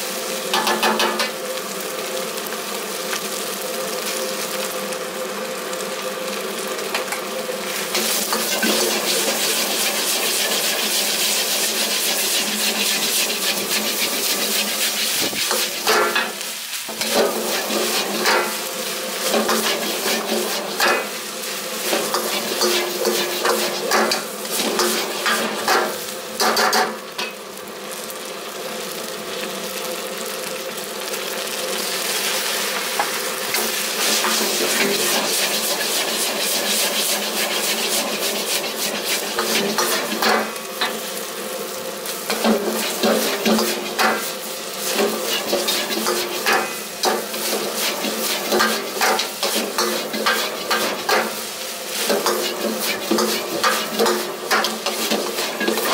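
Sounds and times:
fried rice sizzling in a wok: 0:00.0 - 0:55.9
metal ladle scraping a wok: 0:08.0 - 0:18.6, 0:19.2 - 0:21.1, 0:42.3 - 0:51.4, 0:52.0 - 0:55.9.

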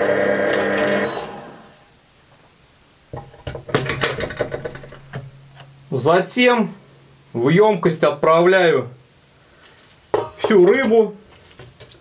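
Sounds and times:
short beep: 0:01.0 - 0:01.4.

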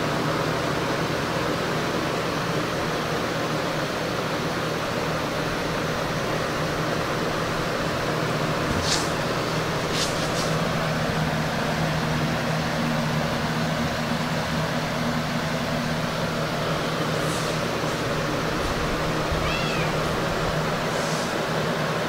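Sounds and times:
low hum with hiss: 0:00.0 - 0:22.0
short hissing sounds: 0:08.7 - 0:10.6, 0:17.0 - 0:18.3, 0:20.9 - 0:21.5.

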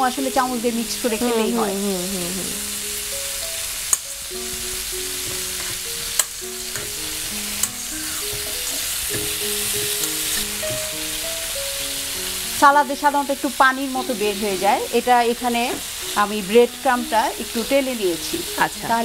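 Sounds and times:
beef sizzling in a pan: 0:00.0 - 0:19.0
soft background music: 0:00.0 - 0:19.0.

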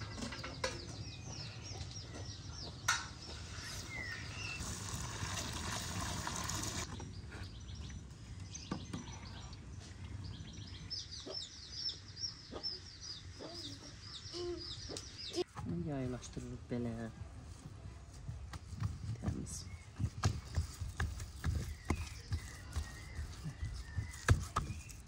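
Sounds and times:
small birds chirping: 0:00.0 - 0:05.0, 0:06.8 - 0:17.1, 0:18.6 - 0:25.0.

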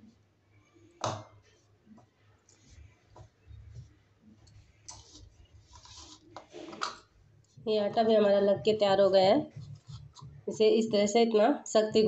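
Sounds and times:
hand rubbing dough: 0:01.4 - 0:06.8, 0:07.5 - 0:11.2.

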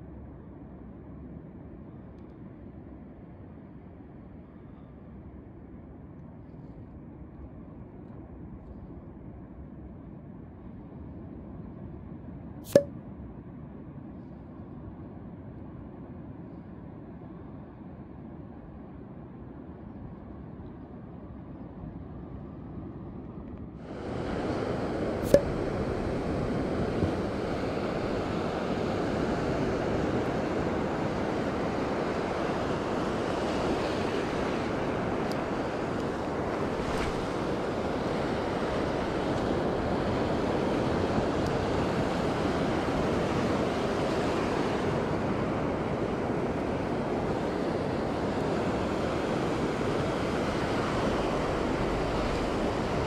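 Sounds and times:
surf breaking on beach: 0:23.9 - 0:53.0.

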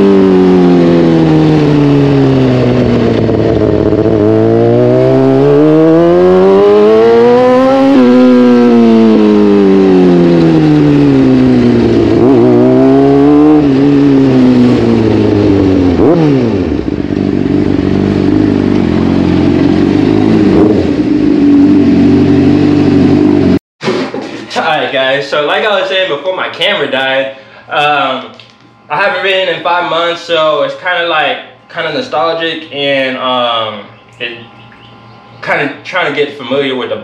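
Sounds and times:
motorcycle engine accelerating: 0:00.0 - 0:24.2.

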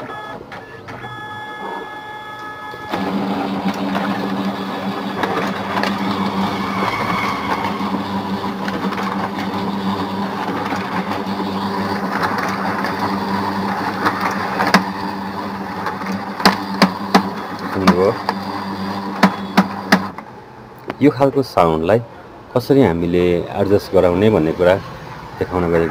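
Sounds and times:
printer gear drone: 0:00.0 - 0:20.7, 0:23.4 - 0:25.9.

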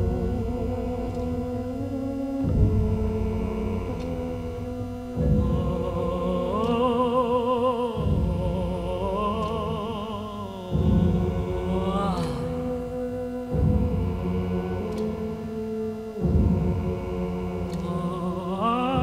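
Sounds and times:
dramatic orchestral music: 0:00.0 - 0:10.0
heavy low drum strikes: 0:00.0 - 0:19.0
high voice singing with vibrato: 0:00.0 - 0:19.0.

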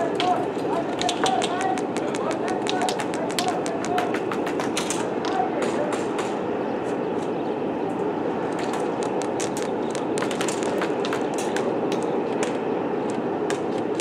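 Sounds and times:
noisy background: 0:00.0 - 0:14.0
airsoft guns firing: 0:00.2 - 0:06.4.

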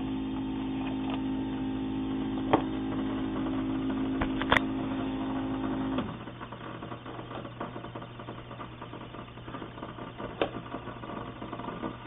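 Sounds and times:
coffee maker pump humming: 0:00.0 - 0:12.0.

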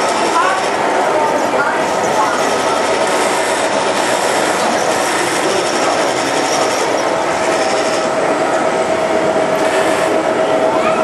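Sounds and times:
model train wheels rattling: 0:02.0 - 0:08.1.

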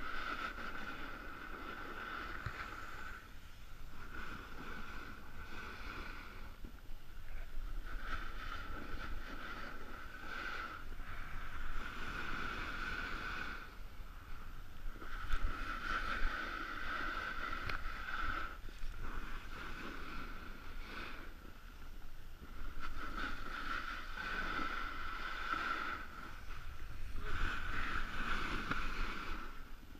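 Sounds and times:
wind rumble on microphone: 0:00.0 - 0:29.9
snow scraping under skis: 0:07.9 - 0:29.9.

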